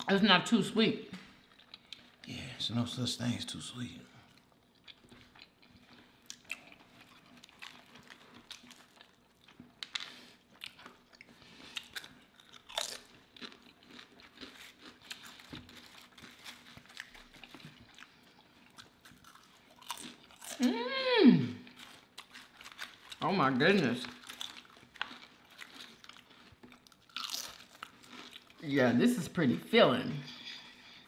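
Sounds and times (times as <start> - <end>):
people chewing: 1.2 - 2.9, 3.8 - 28.6, 30.2 - 31.0
potato chip crunching: 4.8 - 20.8, 21.6 - 28.6.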